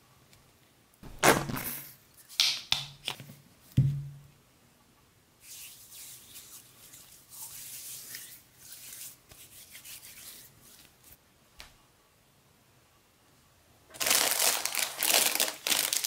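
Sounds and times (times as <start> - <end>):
hands rubbing together: 5.4 - 11.2.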